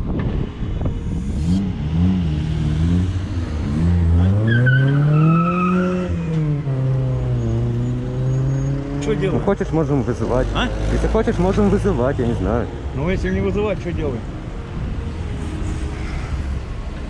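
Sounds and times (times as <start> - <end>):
car engine accelerating: 0.3 - 12.7.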